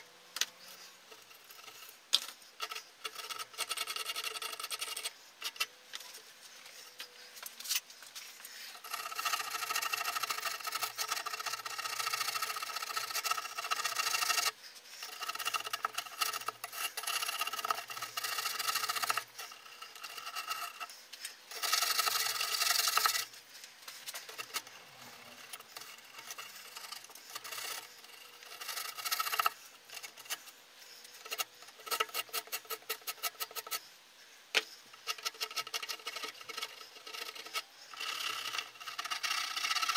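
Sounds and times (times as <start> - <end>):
hand tool scraping insulation board: 8.4 - 23.3.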